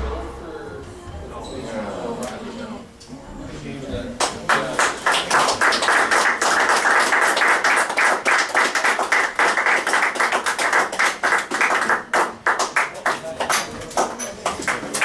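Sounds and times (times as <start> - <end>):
close hand claps: 4.2 - 15.0
spectators applauding: 4.2 - 15.0.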